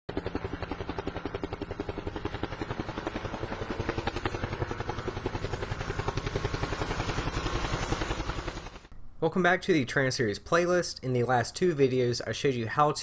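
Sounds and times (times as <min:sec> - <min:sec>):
rapid rotor chopping: 0:00.1 - 0:08.9.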